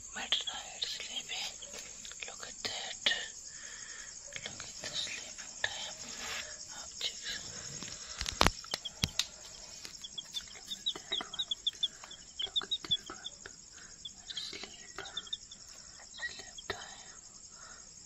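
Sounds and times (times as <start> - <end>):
crickets chirring: 0.0 - 18.0
baby chicks peeping: 0.5 - 2.1, 3.9 - 17.0
light clicks: 7.8 - 10.9.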